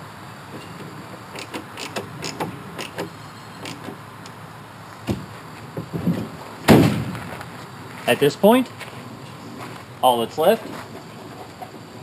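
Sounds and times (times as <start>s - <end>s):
tailgate slamming shut: 5.1s - 7.2s.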